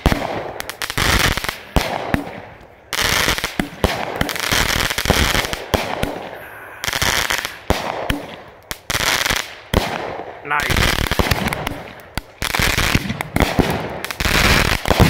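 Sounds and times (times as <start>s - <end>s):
crackling hiss of bursting stars: 0.0s - 15.0s
firework shell reports: 10.4s - 11.4s.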